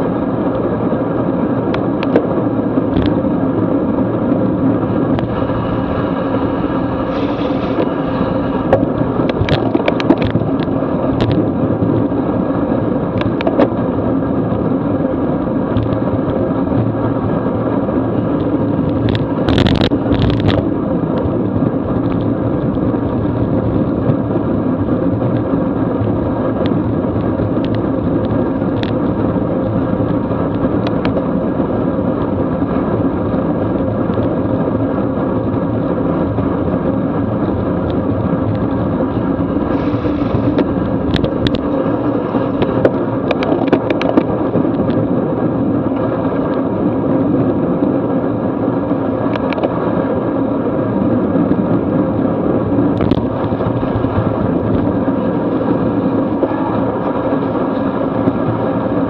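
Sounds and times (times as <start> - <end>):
wind rumble: 0.0 - 59.0
tyre hiss on wet road: 5.3 - 8.6, 39.7 - 40.6.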